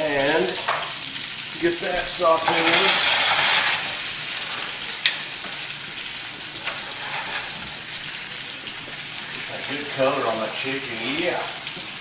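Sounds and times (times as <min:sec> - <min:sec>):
chicken frying sizzle: 0:00.0 - 0:12.0.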